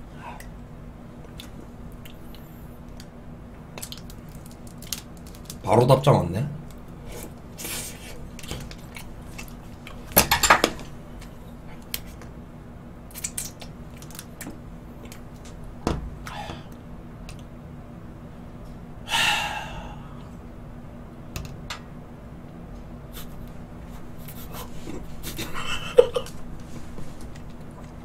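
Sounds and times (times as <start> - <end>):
wrapper crinkling: 3.8 - 5.7.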